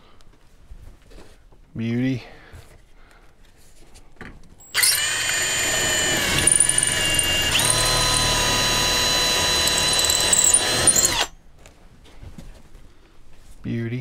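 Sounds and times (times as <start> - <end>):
cordless drill boring: 4.6 - 11.4.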